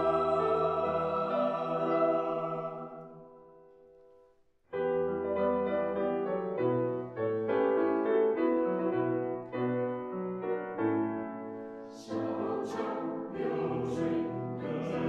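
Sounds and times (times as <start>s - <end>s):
choir holding a chord: 0.0s - 3.6s, 12.0s - 15.0s
grand piano playing: 0.0s - 3.8s, 4.8s - 15.0s.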